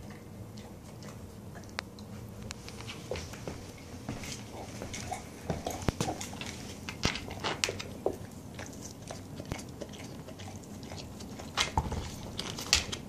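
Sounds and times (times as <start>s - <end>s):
dog chewing rubber toy: 4.3s - 13.0s.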